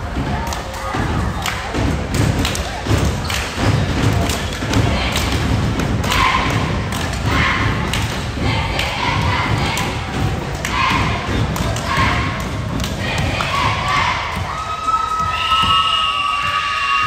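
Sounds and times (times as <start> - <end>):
voices: 0.0 - 16.5
echoing thuds: 1.0 - 14.6.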